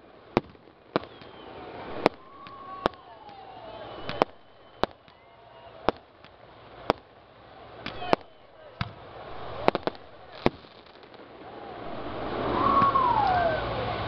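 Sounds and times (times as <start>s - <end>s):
fireworks bursting: 0.0s - 14.0s
rush of noise: 7.4s - 10.5s, 11.1s - 14.0s.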